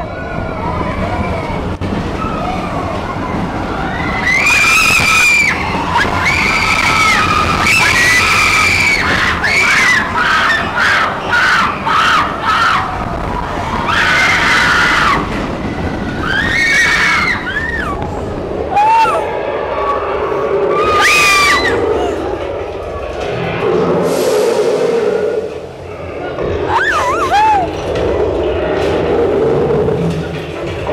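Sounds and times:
roller coaster rumbling on track: 0.0 - 30.9
riders screaming: 3.8 - 22.4, 26.6 - 27.9.

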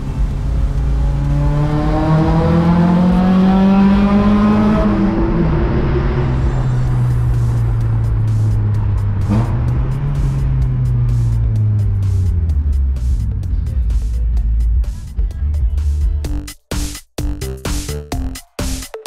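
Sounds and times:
background music with beat: 0.0 - 5.5, 6.3 - 19.0
car engine accelerating: 0.0 - 15.1.

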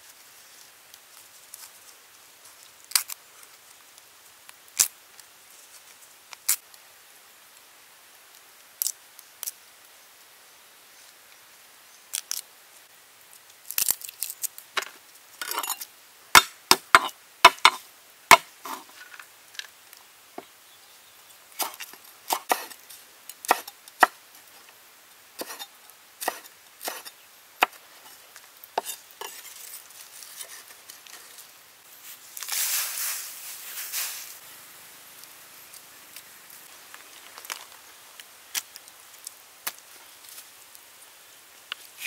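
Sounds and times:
rustling: 25.4 - 34.5.

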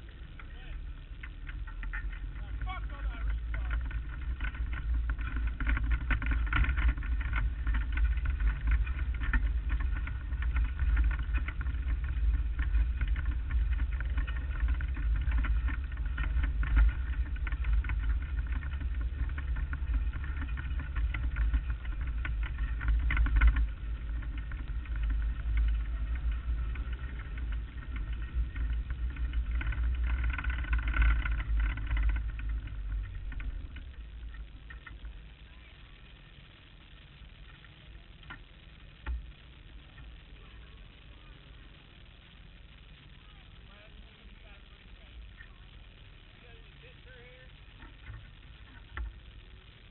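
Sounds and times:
race car engine rumbling: 0.0 - 35.9.

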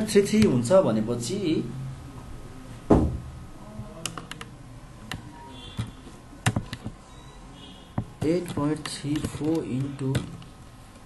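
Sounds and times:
thump: 2.9 - 3.3
computer keyboard keys clicking: 4.0 - 4.5, 5.1 - 7.0, 8.0 - 10.5.

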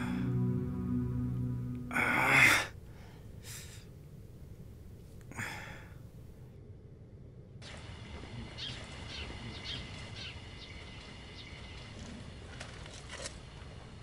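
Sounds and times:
small birds chirping: 8.3 - 11.9.

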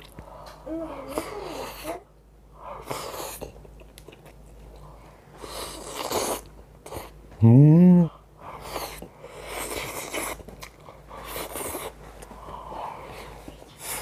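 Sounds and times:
man chewing food: 0.0 - 0.6, 2.8 - 7.3, 8.6 - 14.0
man humming mmm: 7.4 - 8.2.

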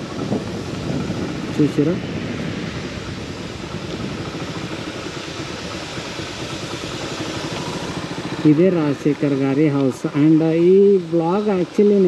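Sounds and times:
road and air noise: 0.0 - 12.0
scooter engine running: 0.0 - 12.0.

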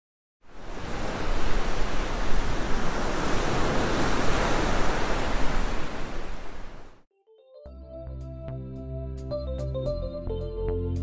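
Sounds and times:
ocean surf rushing: 0.5 - 7.0.

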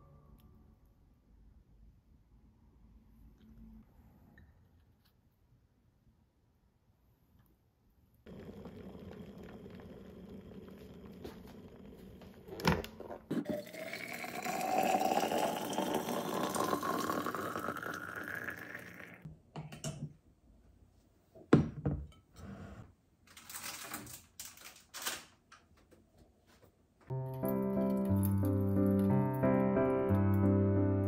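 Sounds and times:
hot water pouring into bottle: 8.3 - 12.6, 13.4 - 19.2.

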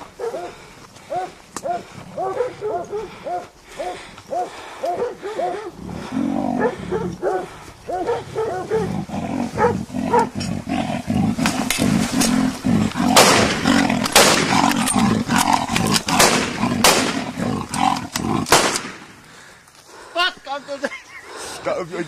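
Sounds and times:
dogs barking: 0.0 - 10.7
leopard growling and snarling: 4.8 - 18.9
rifle shots: 13.0 - 14.9, 15.8 - 17.5, 18.4 - 19.1.

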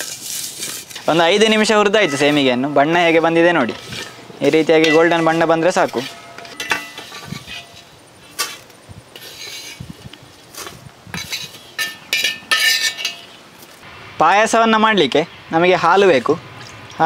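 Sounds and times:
spoon scraping metal pot: 0.0 - 10.0, 10.6 - 13.4
spoon clinks ringing: 2.0 - 3.2, 5.8 - 7.8.

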